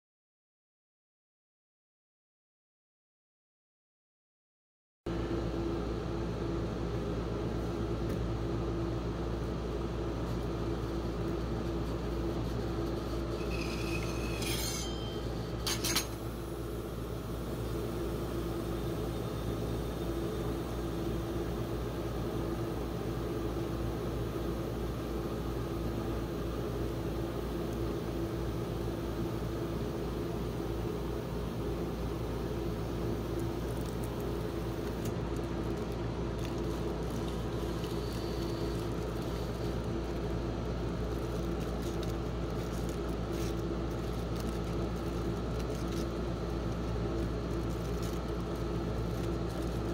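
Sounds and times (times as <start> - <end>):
refrigeration machine hum: 5.1 - 49.9
spatula squeak: 13.2 - 16.0.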